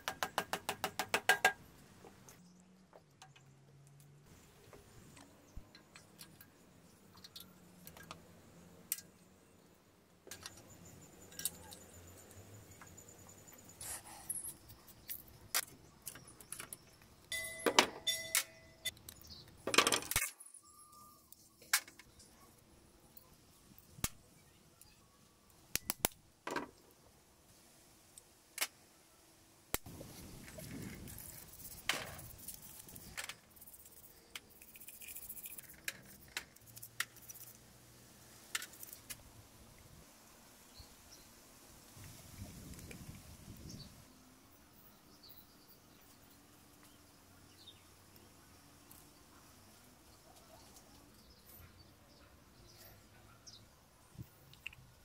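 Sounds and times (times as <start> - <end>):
metallic clinks of small parts: 10.3 - 22.4, 30.7 - 37.6
brush scrubbing small parts: 30.2 - 37.6.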